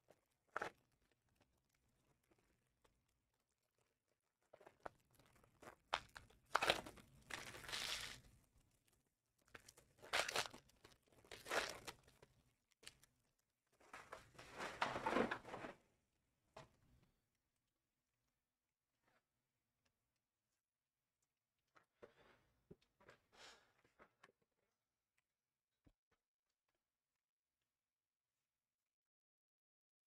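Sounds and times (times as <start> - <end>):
card pack wrappers tearing and crinkling: 6.0 - 8.3, 9.6 - 12.0.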